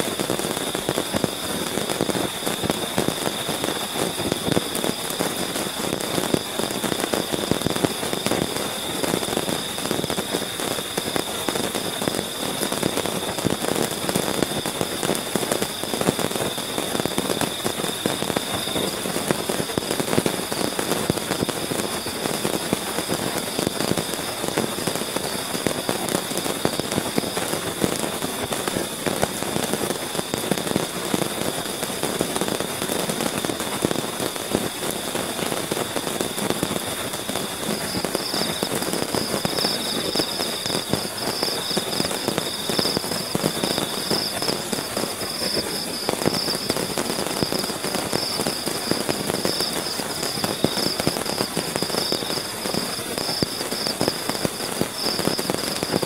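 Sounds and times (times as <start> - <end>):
heavy rain on tent: 0.0 - 56.0
insects trilling: 37.6 - 56.0.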